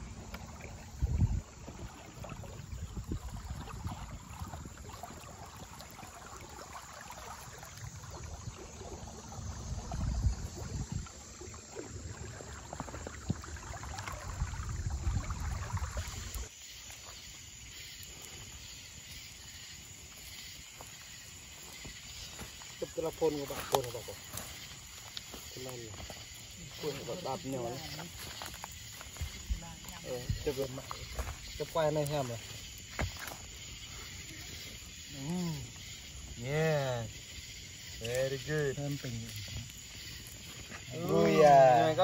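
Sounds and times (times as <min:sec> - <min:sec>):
wind buffeting the microphone: 0:00.0 - 0:05.9, 0:07.9 - 0:16.5
kayak paddling on water: 0:00.0 - 0:42.0
steady high hiss: 0:16.4 - 0:42.0.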